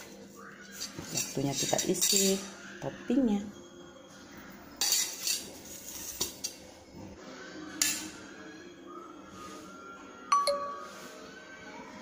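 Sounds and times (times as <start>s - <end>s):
metal spoon clinking on baking tray: 0.8s - 2.5s, 4.8s - 6.6s.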